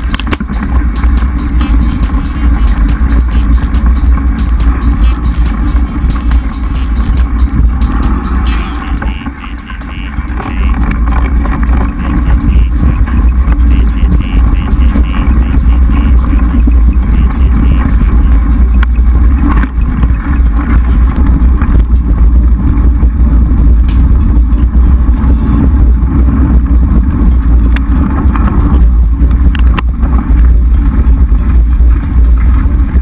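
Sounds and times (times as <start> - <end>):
bike rattling on dirt trail: 0.0 - 33.0
wind buffeting microphone: 0.0 - 33.0.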